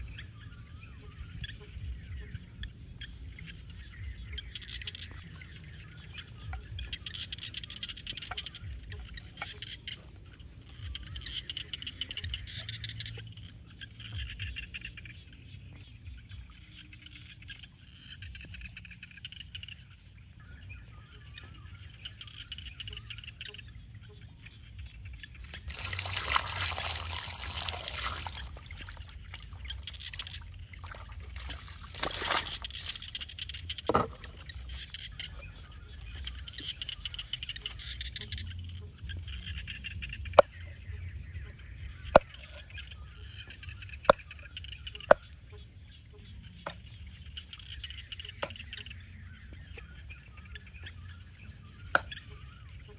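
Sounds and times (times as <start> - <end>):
water splashing onto mud: 25.4 - 34.4.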